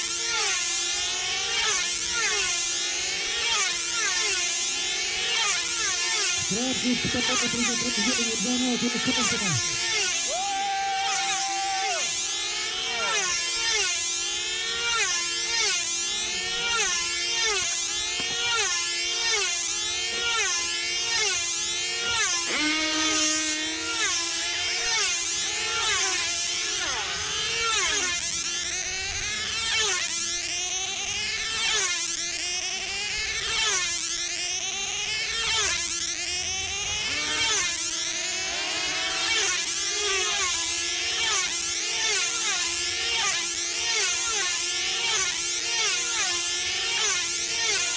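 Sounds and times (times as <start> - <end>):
model aircraft engines whining: 21.8 - 29.6.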